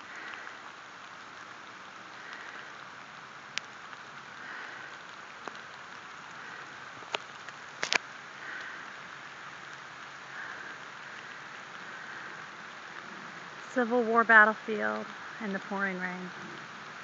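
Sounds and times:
person breathing heavily: 0.0 - 1.5, 2.1 - 3.0, 4.3 - 7.1, 8.2 - 13.1
hiss of pouring rain: 0.0 - 17.0.

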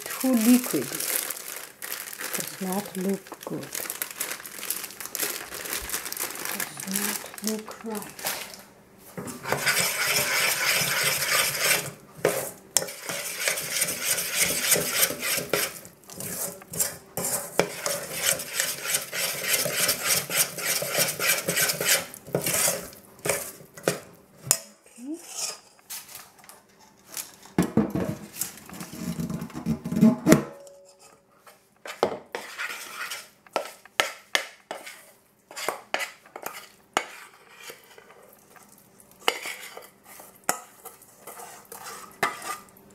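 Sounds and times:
metal spoon scraping saucepan: 9.2 - 25.8, 31.8 - 33.8, 34.7 - 38.2, 39.2 - 42.7.

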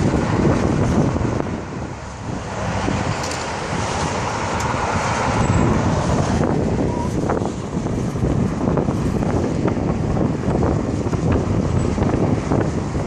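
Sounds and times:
cars passing: 0.0 - 13.0
wind buffeting microphone: 0.0 - 13.0.

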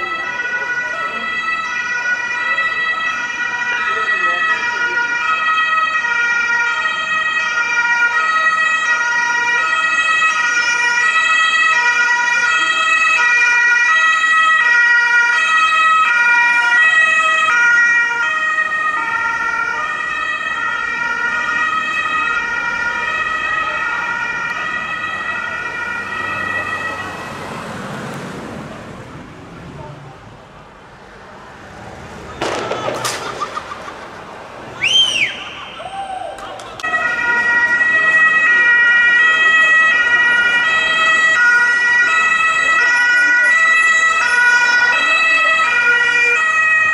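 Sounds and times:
ambulance two-tone siren passing: 0.0 - 30.1, 31.1 - 46.9.

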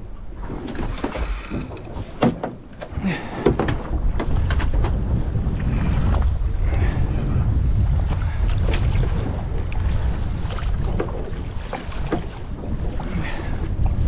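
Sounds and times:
water slapping boat hull: 0.0 - 14.0
wind buffeting microphone: 0.0 - 14.0
knocks and clunks of gear: 0.6 - 5.1.

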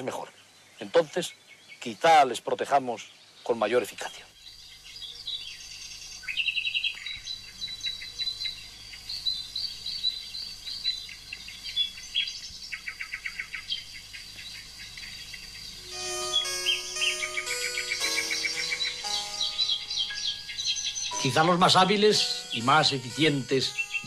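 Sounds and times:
small birds chirping and trilling: 0.0 - 24.0
music with held notes: 15.8 - 24.0.

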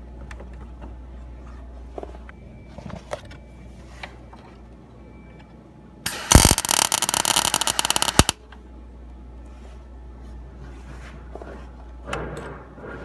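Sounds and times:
welder arc crackling: 6.1 - 8.4.

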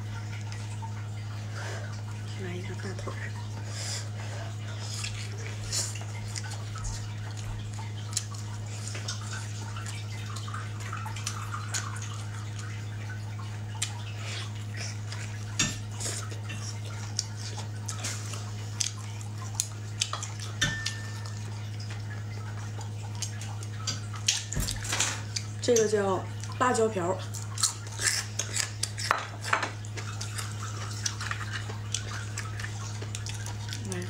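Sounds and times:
low electrical hum: 0.0 - 34.0
chewing mouth noises: 4.4 - 12.8, 13.7 - 20.6, 27.2 - 34.0.

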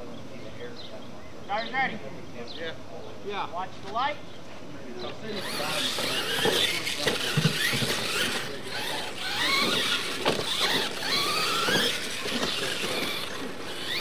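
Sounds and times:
electric motors whining: 5.2 - 14.0
trucks landing thumps: 5.5 - 14.0.

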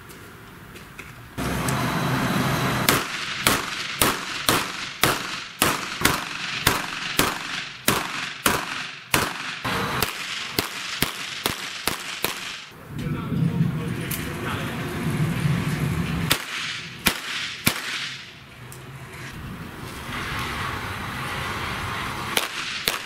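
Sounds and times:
pistol shots with echo: 2.9 - 12.7, 16.3 - 18.2, 22.4 - 23.0
rushing noise: 9.6 - 10.6, 12.6 - 23.0.

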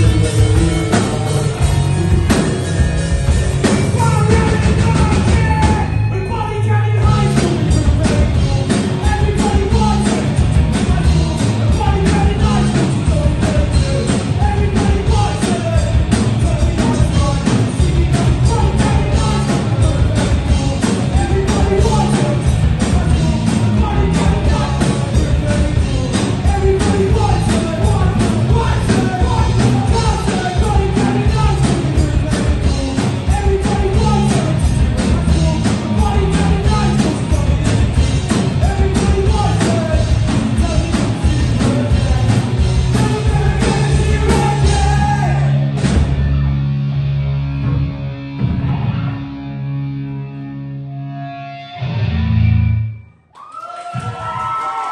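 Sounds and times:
drum kit: 0.0 - 6.4, 7.0 - 46.6
electric guitars: 0.0 - 53.1
person singing: 3.9 - 45.7.

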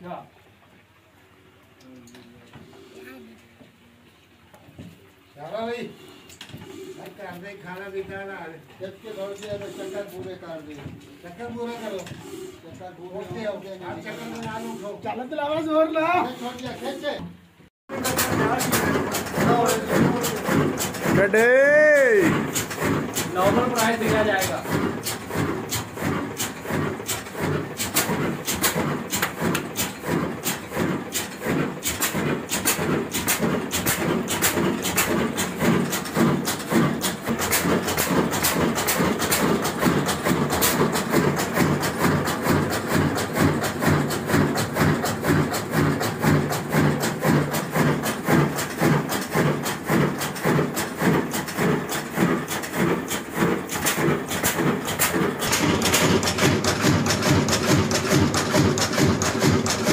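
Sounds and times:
diesel engine knocking: 17.9 - 59.9.

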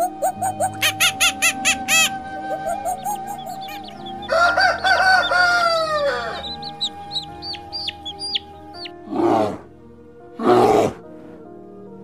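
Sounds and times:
chicken wavering call: 0.0 - 8.9
chicks peeping: 0.0 - 9.0.

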